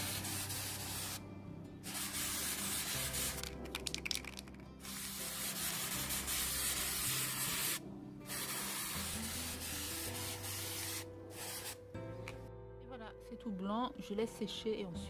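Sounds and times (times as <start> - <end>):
spray paint can hissing: 0.0 - 1.2, 1.8 - 11.8.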